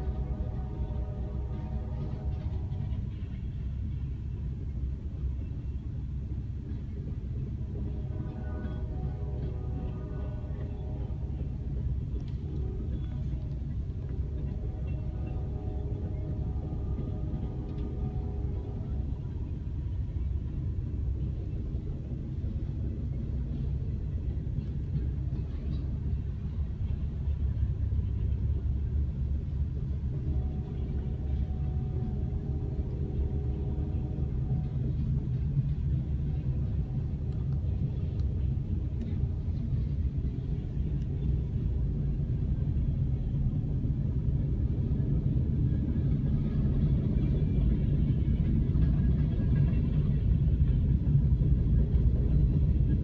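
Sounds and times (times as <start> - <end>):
freight train rolling past: 0.0 - 53.0.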